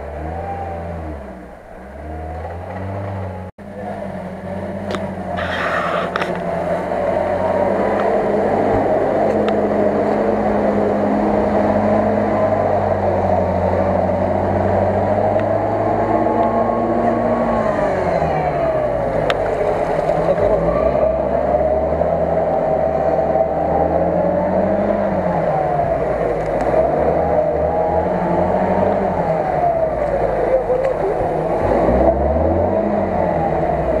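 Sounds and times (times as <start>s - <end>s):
off-road engine revving: 0.0s - 34.0s.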